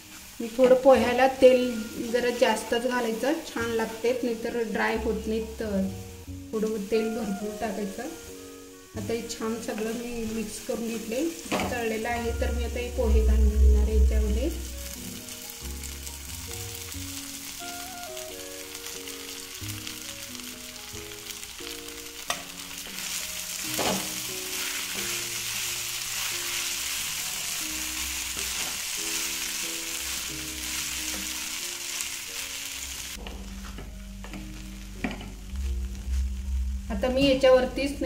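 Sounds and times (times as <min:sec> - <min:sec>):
background music: 0:00.0 - 0:38.0
food sizzling in oil: 0:00.0 - 0:38.0
spatula knocking on pan: 0:33.2 - 0:35.4.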